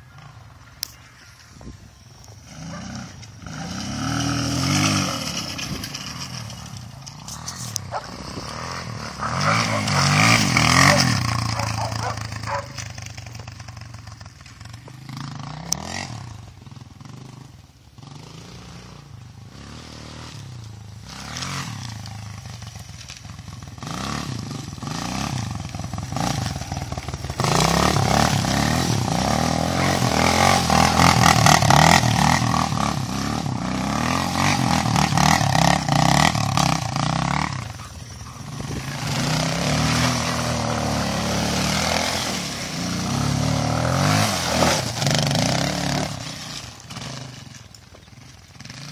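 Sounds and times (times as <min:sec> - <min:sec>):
dirt bike engine revving: 0:02.3 - 0:48.9.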